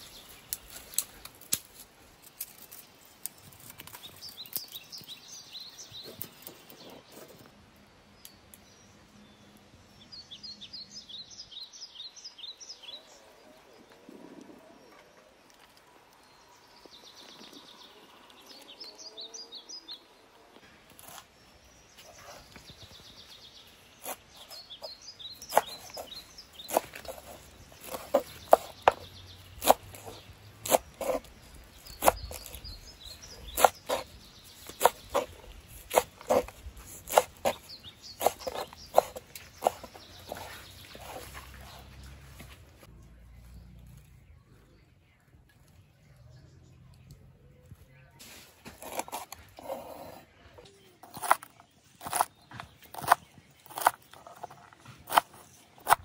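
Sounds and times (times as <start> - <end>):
birds chirping faintly: 0.0 - 56.0
knife chopping on wooden board: 24.0 - 32.6, 33.4 - 41.3, 48.7 - 49.8, 51.1 - 56.0.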